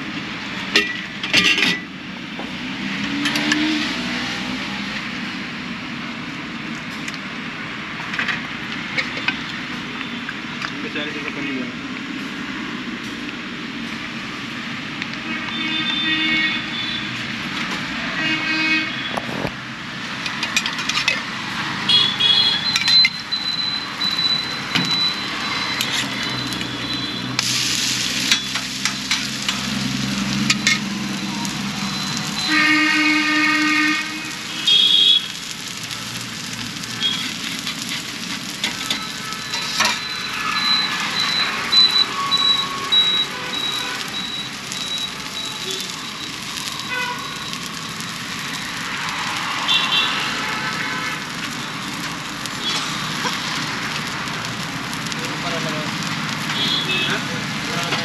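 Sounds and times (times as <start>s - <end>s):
street traffic: 0.0s - 58.0s
vehicle horn honks: 15.3s - 17.1s, 18.2s - 19.2s, 21.9s - 22.7s, 32.4s - 35.3s, 46.9s - 47.2s, 56.6s - 57.2s.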